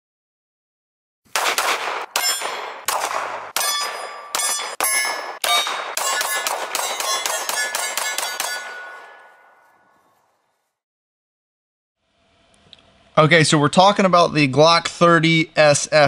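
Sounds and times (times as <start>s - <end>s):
pistol shots: 1.3s - 9.5s
steel plates ringing: 2.2s - 2.8s, 3.6s - 10.2s.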